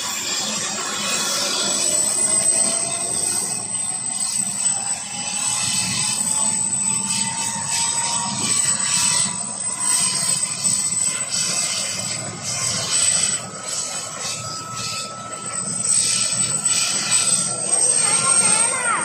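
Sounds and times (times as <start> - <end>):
helicopter turbine whine: 0.0 - 19.0
higher whine tone: 0.0 - 19.0
low rotor drone: 0.0 - 19.0.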